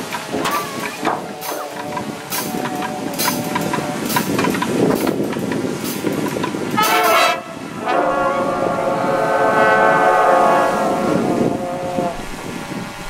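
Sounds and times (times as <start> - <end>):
brass section playing chords: 6.8 - 13.0.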